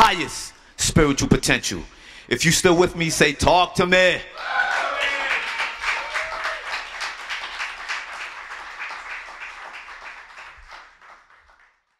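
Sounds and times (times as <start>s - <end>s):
audience applauding: 4.4s - 11.9s.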